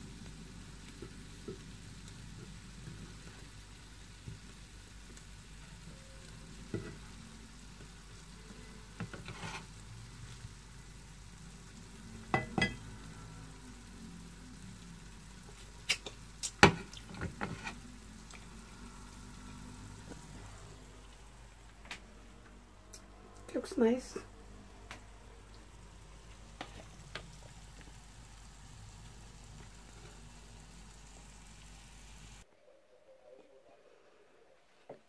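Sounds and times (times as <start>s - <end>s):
food sizzling in a frying pan: 0.0s - 21.5s, 23.7s - 32.5s
spatula clinking and scraping: 9.0s - 9.7s.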